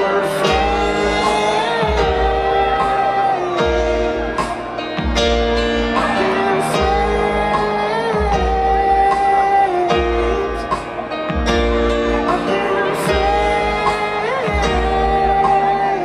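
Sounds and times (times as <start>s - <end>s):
man singing long notes: 0.0s - 4.5s, 5.8s - 11.1s, 12.1s - 16.0s
bass: 0.0s - 16.0s
drums slow beat: 0.0s - 16.0s
piano chords: 0.0s - 16.0s.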